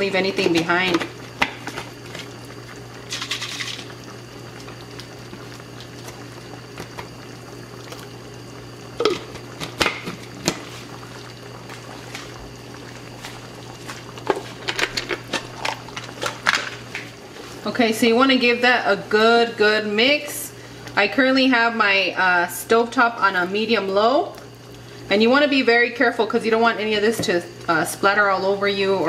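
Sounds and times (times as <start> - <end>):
sauce simmering and bubbling: 0.0 - 17.7, 22.7 - 28.9
low steady hum: 0.0 - 29.0
water pouring: 0.7 - 17.6.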